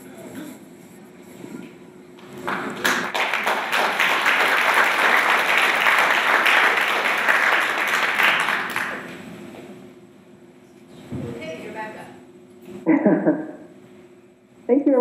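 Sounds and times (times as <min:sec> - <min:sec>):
audience applauding: 0:02.2 - 0:09.3.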